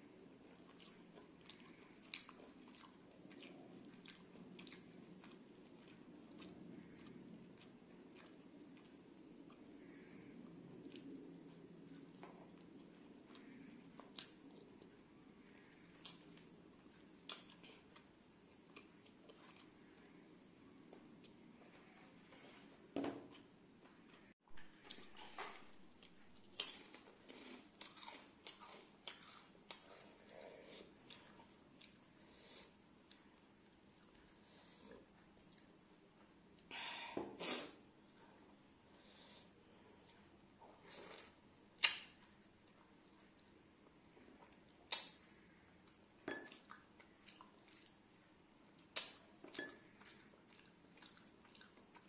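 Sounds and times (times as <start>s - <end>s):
person chewing crunchy food: 0.5s - 22.6s, 24.6s - 35.7s, 45.8s - 48.2s, 48.8s - 52.0s.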